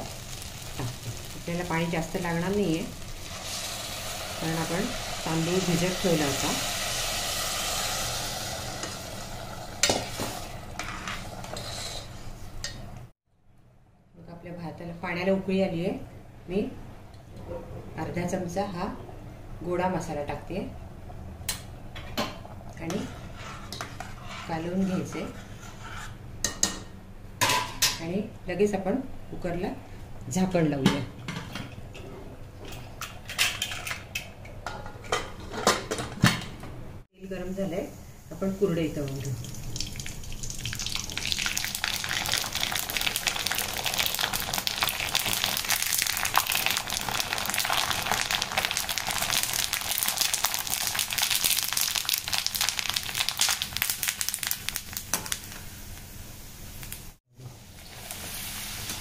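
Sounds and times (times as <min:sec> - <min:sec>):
water sizzling on rice: 0:00.0 - 0:12.1, 0:38.6 - 0:59.0.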